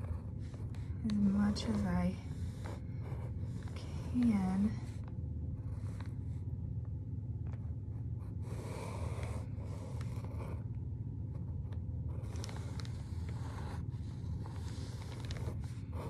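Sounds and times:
marker scratching on paper: 0.0 - 4.4
steady low hum: 0.0 - 16.0.

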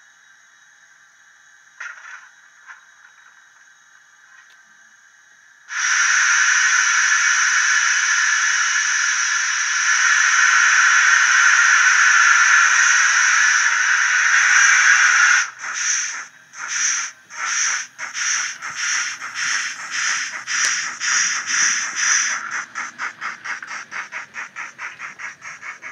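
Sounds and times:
steam hiss: 5.6 - 25.9
steam locomotive exhaust chuffs: 5.7 - 25.9.

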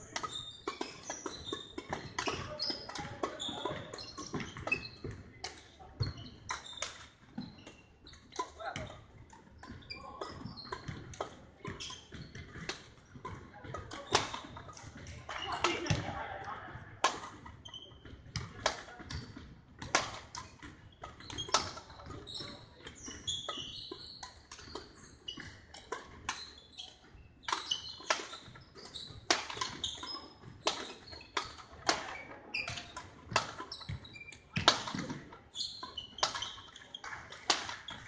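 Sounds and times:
shoes squeaking on wooden floor: 0.0 - 5.2, 20.8 - 38.0
rackets striking shuttlecocks: 10.3 - 17.5, 19.8 - 38.0.

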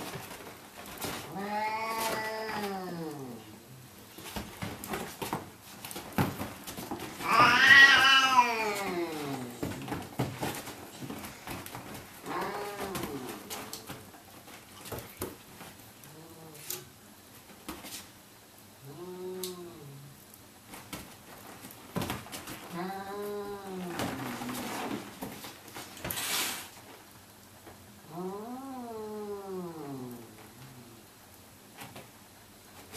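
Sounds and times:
cat yowling: 7.2 - 9.6, 12.2 - 13.4.

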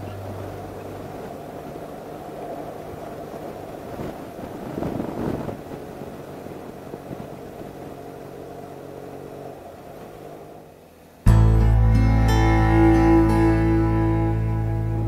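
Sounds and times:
wind noise: 0.0 - 10.4.

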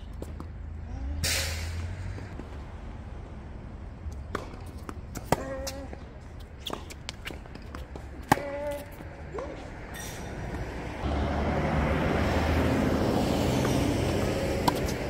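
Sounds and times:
tennis ball bouncing: 0.1 - 0.6, 4.1 - 9.6, 13.6 - 15.0
racket hitting tennis ball: 4.1 - 10.7, 13.5 - 15.0.

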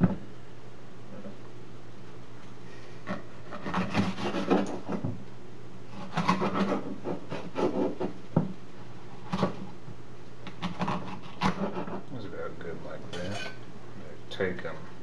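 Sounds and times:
knife slicing pepper on wooden board: 3.1 - 5.1, 6.0 - 8.2, 9.2 - 9.7, 10.5 - 12.0.

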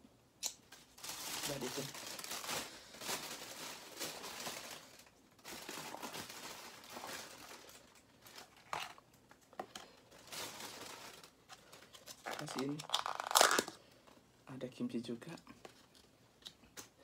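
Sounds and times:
crayfish shells cracking: 12.1 - 13.8.

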